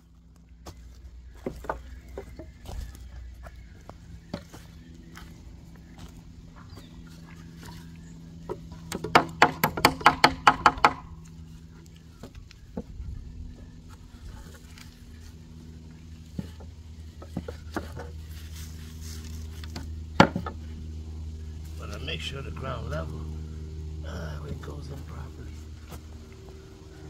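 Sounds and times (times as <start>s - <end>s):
low hum: 0.0s - 27.0s
rapid sharp knocks: 8.9s - 11.0s.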